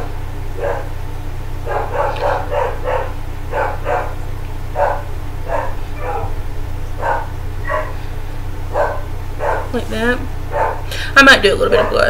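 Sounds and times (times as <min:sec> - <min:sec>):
dog barking: 0:00.5 - 0:01.0, 0:01.6 - 0:08.1, 0:08.7 - 0:09.8, 0:10.5 - 0:10.9, 0:11.8 - 0:12.0.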